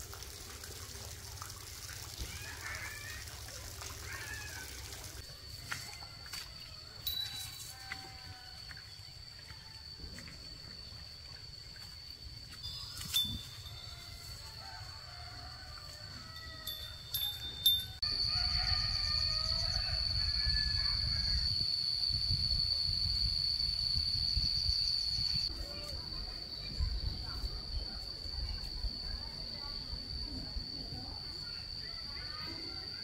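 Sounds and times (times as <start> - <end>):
steady high-pitched tone: 16.7 - 33.0.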